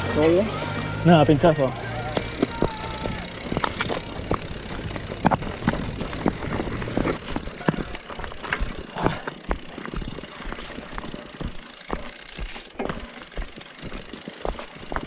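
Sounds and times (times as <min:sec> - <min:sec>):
bike knocking and rattling: 0:00.0 - 0:15.0
tyre and wind noise: 0:02.0 - 0:15.0.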